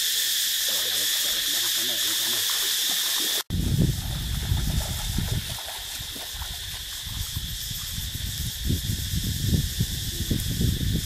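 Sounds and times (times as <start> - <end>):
high insect drone: 0.0 - 11.0
stream water running: 0.0 - 11.0
low rumble on microphone: 3.5 - 11.0.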